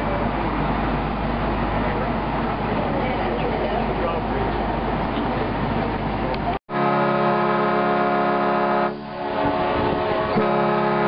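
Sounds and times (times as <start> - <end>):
boat horn blasts: 6.7 - 11.0.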